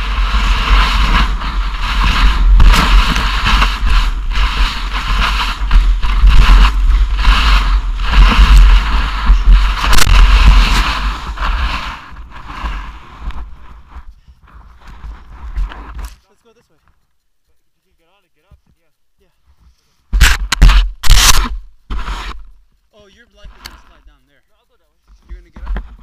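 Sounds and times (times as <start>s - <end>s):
wind buffeting microphone: 0.0s - 15.7s.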